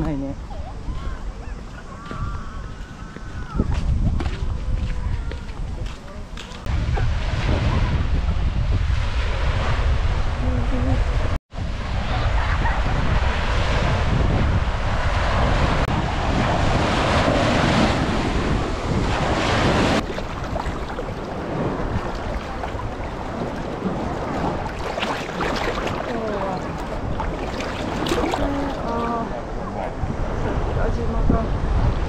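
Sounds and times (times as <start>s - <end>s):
wind buffeting microphone: 0.0s - 32.0s
small waves breaking on shore: 6.0s - 32.0s
water lapping and splashing: 14.9s - 32.0s.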